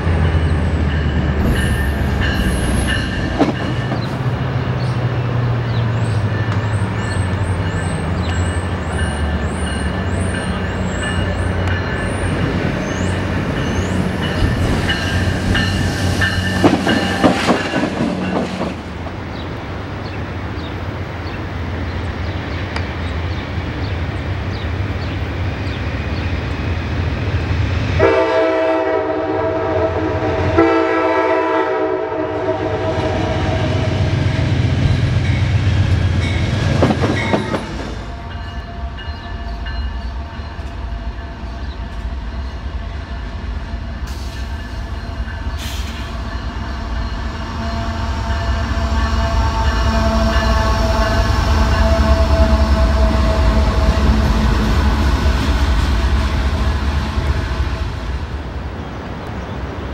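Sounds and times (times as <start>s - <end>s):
diesel locomotive rumble: 0.0s - 59.9s
train rumbling and clattering past: 0.0s - 59.9s
locomotive horn blasts: 28.0s - 34.2s, 47.5s - 55.3s.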